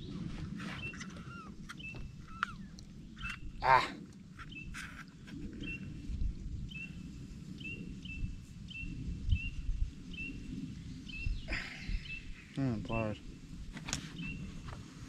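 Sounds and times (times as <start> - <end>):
bird chirping: 0.7 - 3.6.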